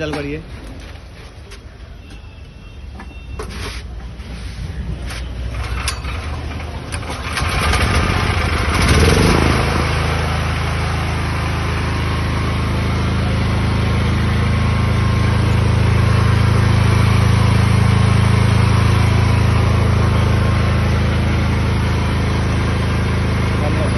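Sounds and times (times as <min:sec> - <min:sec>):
generator engine running: 0:04.2 - 0:23.9
recoil starter pull: 0:05.5 - 0:09.6.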